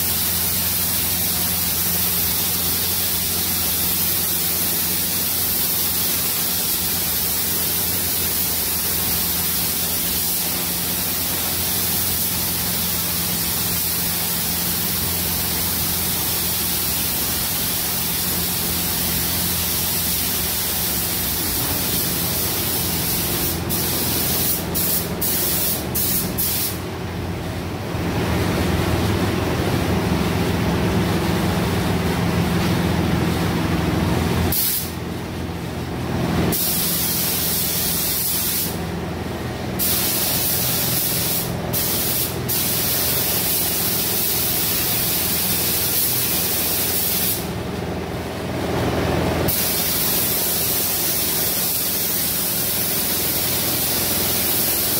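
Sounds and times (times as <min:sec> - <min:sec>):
spray gun hissing: 0:00.0 - 0:26.8, 0:34.5 - 0:35.0, 0:36.5 - 0:38.8, 0:39.8 - 0:47.6, 0:49.5 - 0:54.9
steady low hum: 0:06.0 - 0:36.6.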